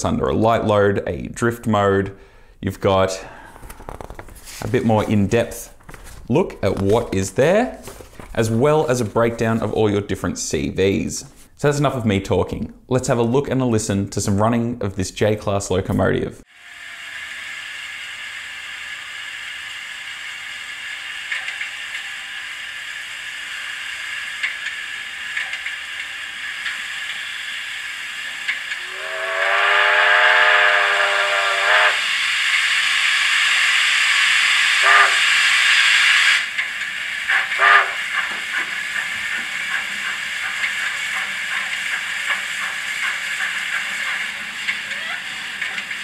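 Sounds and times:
steady steam hiss: 1.8 - 12.0, 16.4 - 46.0
rush of steam: 16.5 - 46.0
steam whistle: 28.3 - 36.6, 37.3 - 38.2.

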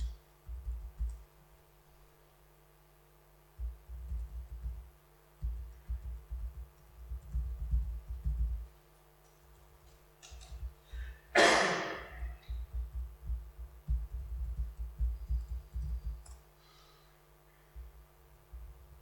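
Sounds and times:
laptop keyboard typing: 0.0 - 1.3, 3.6 - 11.1, 12.4 - 16.4
exhale close to microphone: 16.6 - 17.8.

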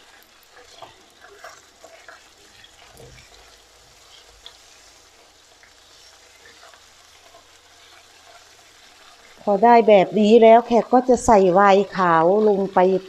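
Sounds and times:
meat sizzling in a frying pan: 0.0 - 13.0
wooden spatulas stirring: 0.5 - 9.4.

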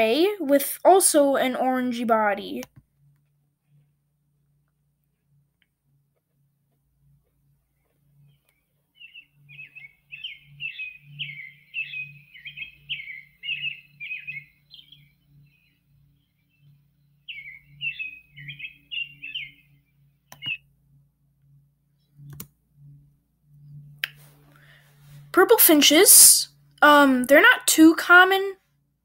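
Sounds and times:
robin singing: 7.8 - 24.8
sharp clicks: 20.3 - 20.6, 22.2 - 22.6.

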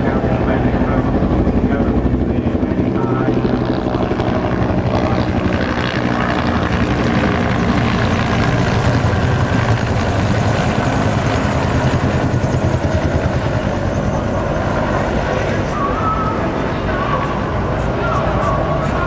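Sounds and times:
helicopter rotors chopping overhead: 0.0 - 19.0.

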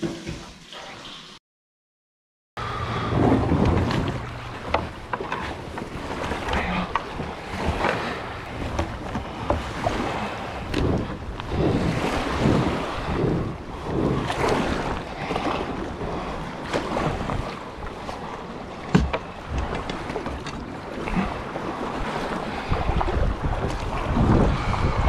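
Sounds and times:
water splashing against kayak: 2.6 - 25.0
wind buffeting microphone: 2.6 - 25.0.

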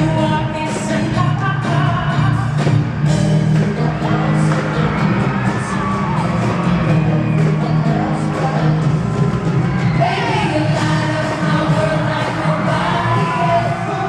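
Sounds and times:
live pop band playing: 0.0 - 14.0
group of singers singing: 2.4 - 14.0.

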